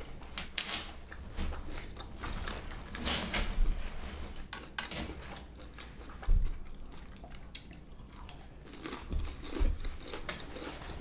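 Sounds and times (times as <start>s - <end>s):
chewing crunchy food: 1.0s - 3.0s, 4.6s - 11.0s.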